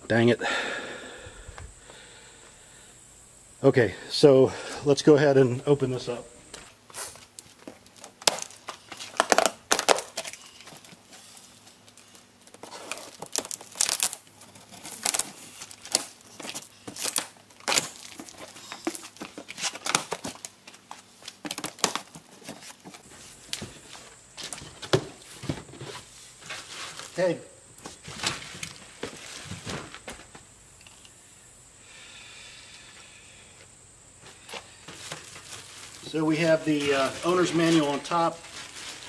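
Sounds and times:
plastic strapping pulled off: 0:06.9 - 0:11.0, 0:11.8 - 0:23.0
cardboard and plastic crinkling: 0:06.9 - 0:27.2, 0:27.8 - 0:30.4, 0:34.9 - 0:39.0.

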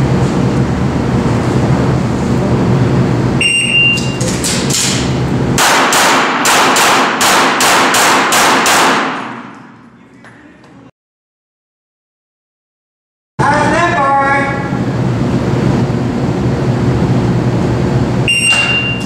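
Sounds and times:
shot timer beep: 0:03.4 - 0:04.2, 0:18.3 - 0:19.0
rapid pistol shots: 0:05.6 - 0:09.5.

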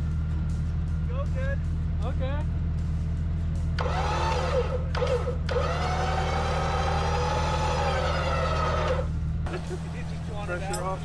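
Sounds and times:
low engine hum: 0:00.0 - 0:11.0
winch motor whining: 0:03.8 - 0:11.0.

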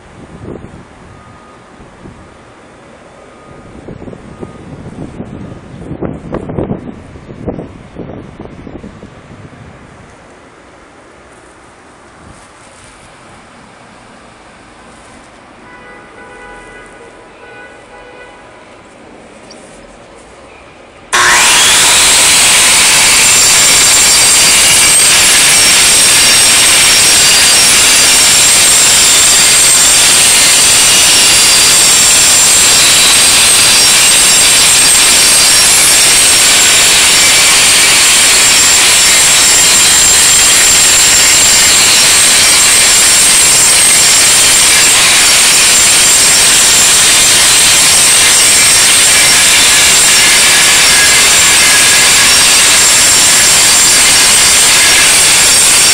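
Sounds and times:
angle grinder grinding metal: 0:21.2 - 0:55.9.

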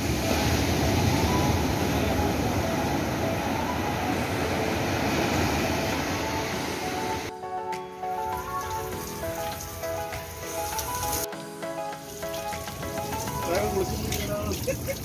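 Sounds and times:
sea surf roaring: 0:00.0 - 0:07.3
background music: 0:00.3 - 0:14.8.

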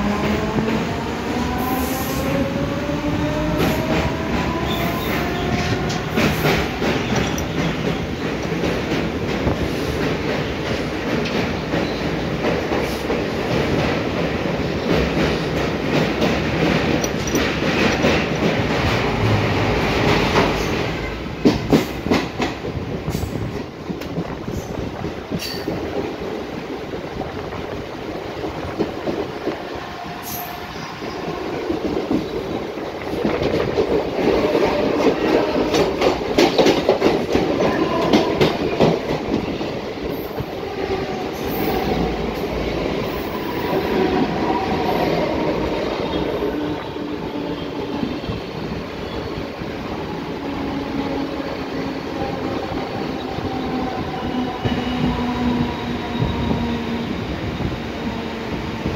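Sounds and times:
passing train: 0:00.0 - 0:58.9
train wheels rumbling on rails: 0:00.0 - 0:58.9
clacks over rail joints: 0:03.5 - 0:19.4, 0:21.4 - 0:24.7, 0:33.0 - 0:42.0.

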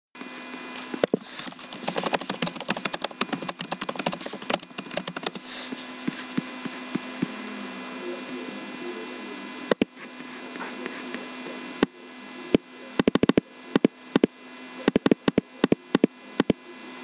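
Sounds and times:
steady electrical hum: 0:00.2 - 0:17.0
laptop keyboard clicks: 0:00.8 - 0:05.4.

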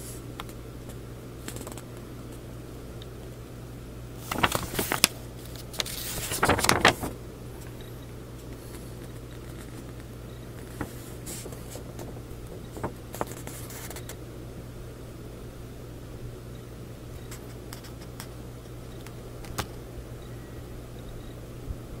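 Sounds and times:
steady low hum: 0:00.0 - 0:22.0
paper pages rustling: 0:01.4 - 0:01.9, 0:04.2 - 0:07.8, 0:08.4 - 0:14.2.

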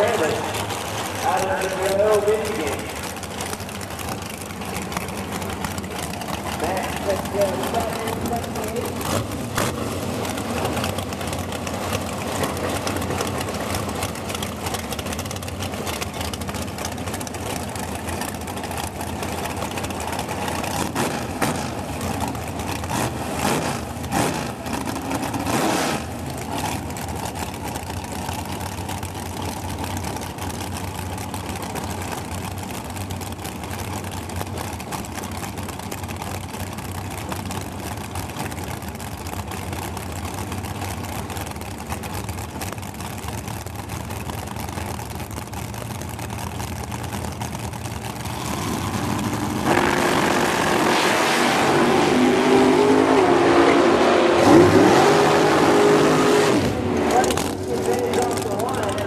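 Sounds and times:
engine revs: 0:00.0 - 0:28.8, 0:47.4 - 0:59.0
race car engines idling: 0:00.0 - 0:59.0.

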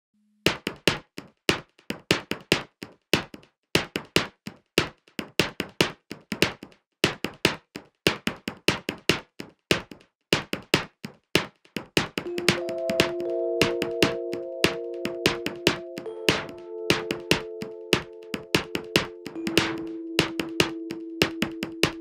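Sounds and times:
looped electronic percussion: 0:12.2 - 0:22.0.

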